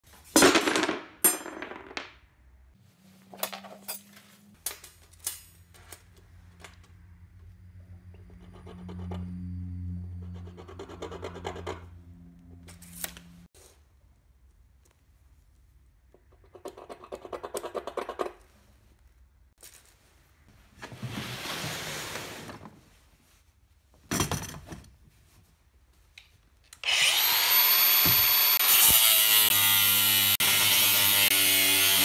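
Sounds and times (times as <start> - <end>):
metal bar and tape measure handling: 3.3 - 6.2.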